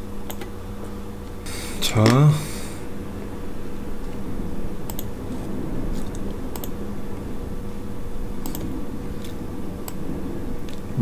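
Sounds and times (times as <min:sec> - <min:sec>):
low room hum: 0:00.0 - 0:11.0
computer mouse clicks: 0:04.9 - 0:05.1, 0:06.1 - 0:06.8, 0:08.4 - 0:08.7.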